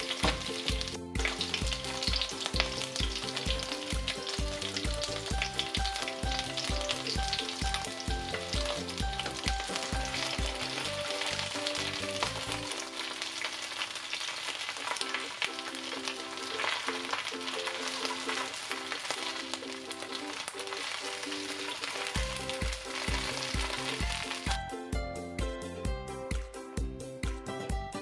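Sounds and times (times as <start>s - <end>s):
background music with bass beat: 0.0s - 12.6s, 22.2s - 28.0s
chicken wings sizzling in oil: 0.0s - 24.6s.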